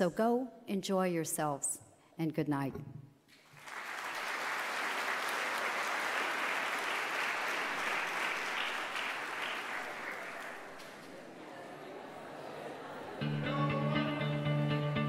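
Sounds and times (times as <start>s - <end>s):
audience applauding: 3.3s - 11.4s.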